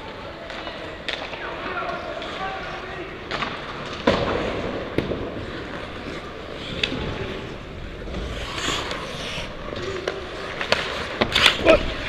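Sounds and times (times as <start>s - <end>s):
ice skates scraping: 0.6s - 12.0s.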